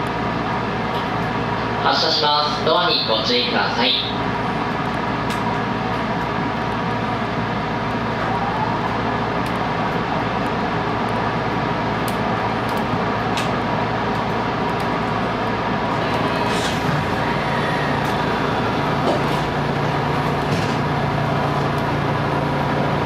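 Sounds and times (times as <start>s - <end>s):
electric train equipment hum: 0.0s - 23.0s.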